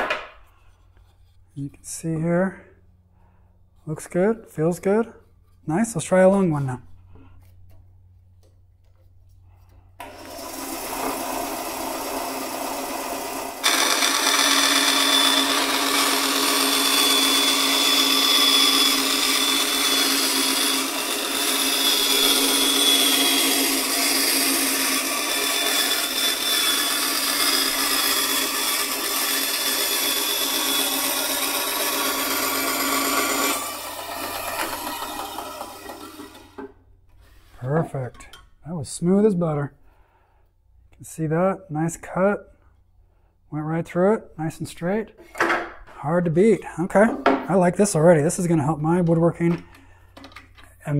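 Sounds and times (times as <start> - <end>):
bandsaw motor running: 10.0 - 36.7
bandsaw cutting wood board: 10.0 - 36.8.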